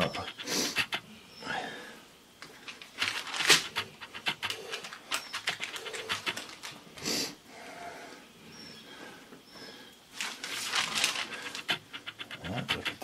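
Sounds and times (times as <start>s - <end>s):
parchment paper crinkling: 2.5s - 3.7s, 4.7s - 6.9s, 10.2s - 11.7s.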